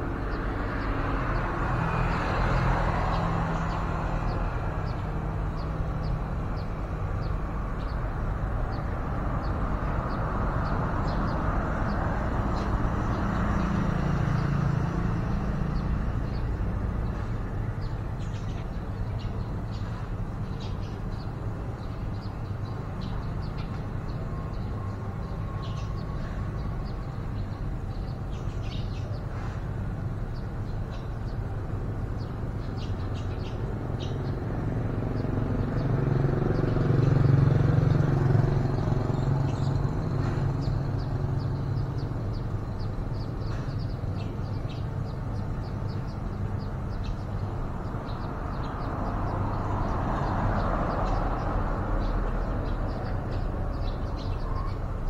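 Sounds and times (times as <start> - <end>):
road traffic rumble: 0.0 - 55.0
faint high bird chirps: 53.0 - 54.9.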